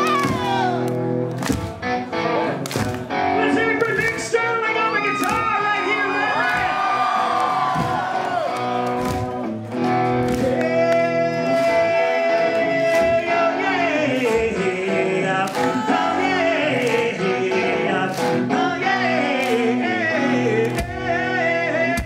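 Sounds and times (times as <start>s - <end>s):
distorted electric guitars: 0.0s - 22.0s
drum beat: 6.5s - 7.0s, 7.6s - 8.2s.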